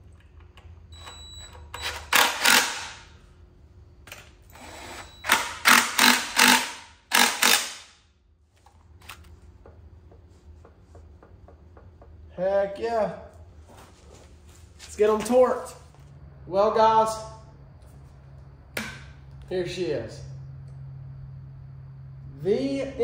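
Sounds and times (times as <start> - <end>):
impact driver bursts: 1.8 - 3.1, 4.5 - 8.0.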